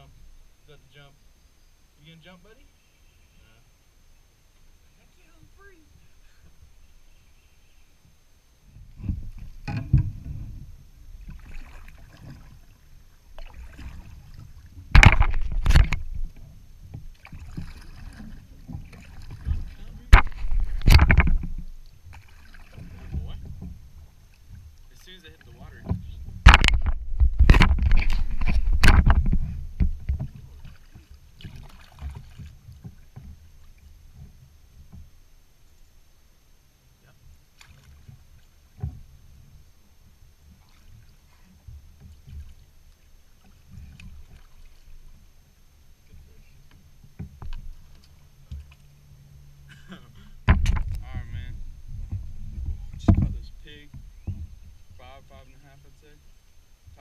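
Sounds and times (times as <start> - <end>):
paddle strokes: 4.5 - 36.2, 37.1 - 57.0
water sloshing: 8.6 - 36.0, 37.3 - 57.0
knocks on kayak: 14.9 - 16.3, 18.7 - 21.7, 25.8 - 30.4, 50.4 - 54.6.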